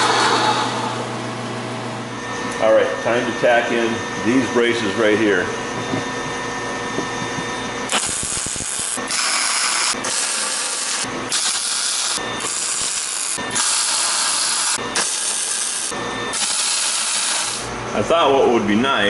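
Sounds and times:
welding arc crackles: 0:07.9 - 0:10.7, 0:11.3 - 0:17.6.

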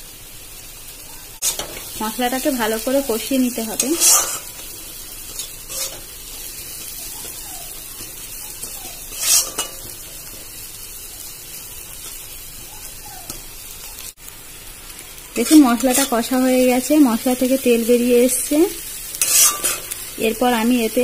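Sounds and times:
masala sizzling in oil: 0:00.0 - 0:21.0
metal spatula scraping: 0:01.4 - 0:02.0, 0:03.1 - 0:04.7, 0:05.3 - 0:07.4, 0:08.0 - 0:10.3, 0:15.4 - 0:16.4, 0:19.1 - 0:20.1.

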